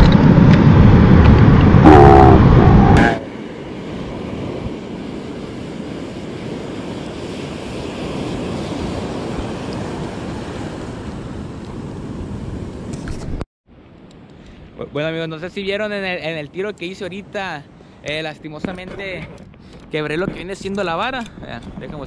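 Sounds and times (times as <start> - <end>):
ocean surf breaking: 0.0 - 12.9
wind buffeting microphone: 0.0 - 13.4, 18.6 - 22.0.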